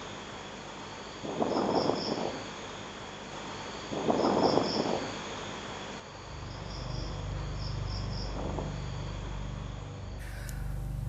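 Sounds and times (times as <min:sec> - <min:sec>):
crickets chirping: 0:00.0 - 0:11.0
low steady hum: 0:06.0 - 0:11.0.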